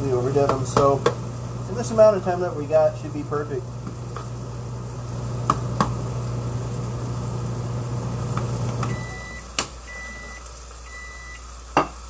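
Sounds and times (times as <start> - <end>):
microwave oven humming: 0.0 - 12.0
microwave beep: 8.8 - 11.6.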